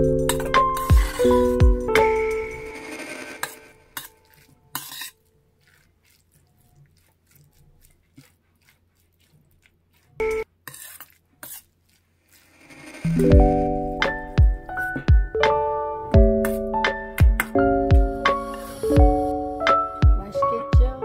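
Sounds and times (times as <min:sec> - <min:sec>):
metal spoon scraping steel bowl: 0:00.3 - 0:08.7, 0:09.9 - 0:13.1.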